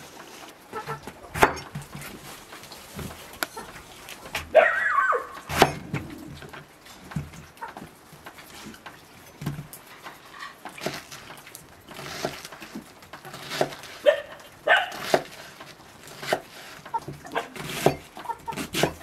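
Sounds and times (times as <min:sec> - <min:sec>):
knife slicing cabbage: 0:00.8 - 0:02.4, 0:05.5 - 0:06.2, 0:11.9 - 0:19.0
knife striking wooden board: 0:01.3 - 0:01.8, 0:05.5 - 0:06.1, 0:17.3 - 0:19.0.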